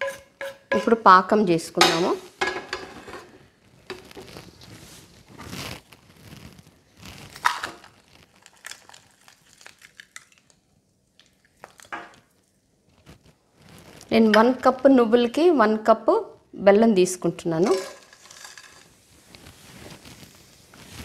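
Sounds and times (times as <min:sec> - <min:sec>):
rustling and crinkling: 0:03.4 - 0:14.2, 0:17.6 - 0:21.0.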